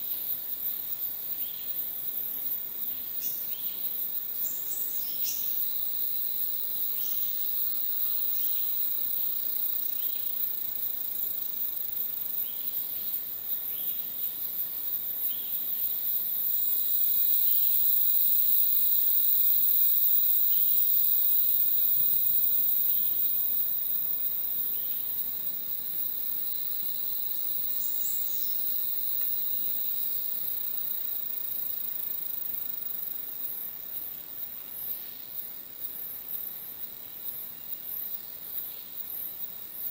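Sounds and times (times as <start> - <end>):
higher insect tone: 0.0 - 33.8
high rapidly pulsing insect trill: 0.0 - 39.9
insects shrill whine: 2.5 - 14.1, 14.8 - 33.1.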